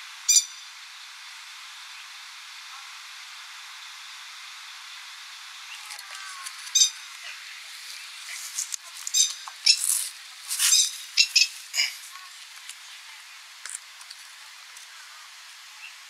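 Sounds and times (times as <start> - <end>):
faint background noise: 0.0 - 16.0
bird stuttering calls: 9.1 - 10.0, 10.6 - 12.4.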